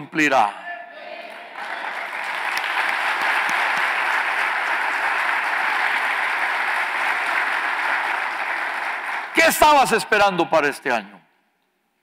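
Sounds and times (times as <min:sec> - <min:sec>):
congregation applauding: 0:01.2 - 0:10.3.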